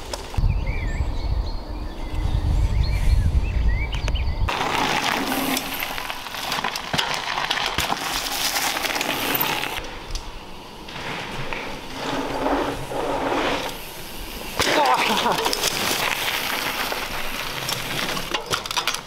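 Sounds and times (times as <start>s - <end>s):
tyres crunching on dirt: 4.5s - 19.0s
bike rattling clicks: 14.5s - 19.0s.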